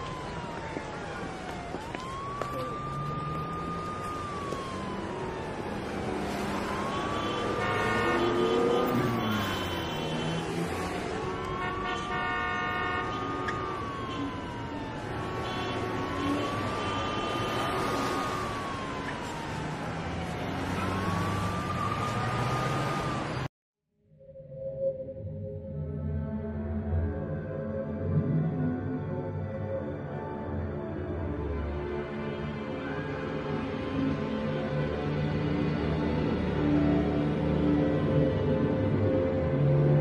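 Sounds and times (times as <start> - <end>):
low traffic rumble: 0.0 - 23.5
siren wailing: 0.0 - 23.5.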